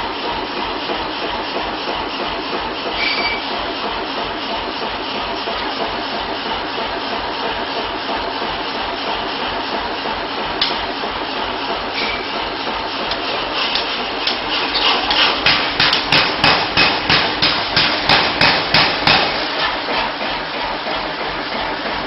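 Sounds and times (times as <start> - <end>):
workshop machinery hum: 0.0 - 22.0
hammer striking metal: 15.1 - 19.4.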